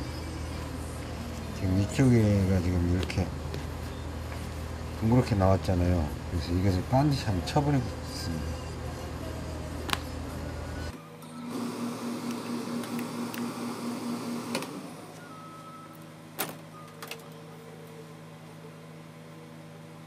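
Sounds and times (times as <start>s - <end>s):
steam iron hissing and buzzing: 11.4s - 15.2s.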